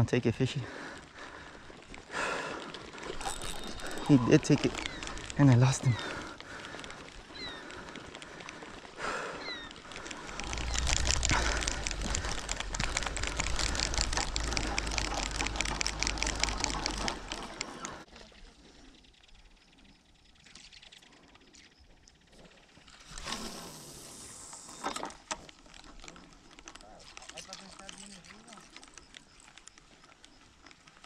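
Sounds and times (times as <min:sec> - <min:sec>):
fishing reel clicking: 0:03.0 - 0:07.8, 0:09.5 - 0:18.0
wind on microphone: 0:10.3 - 0:15.4.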